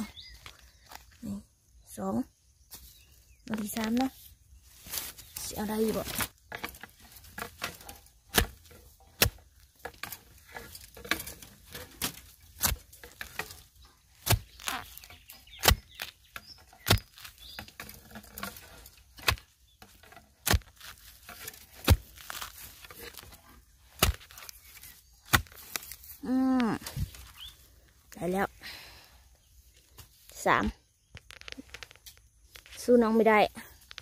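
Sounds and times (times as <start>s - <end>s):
earth scraping and knocking: 0.0s - 1.6s, 2.6s - 34.0s
blade chopping into soil: 4.9s - 26.2s.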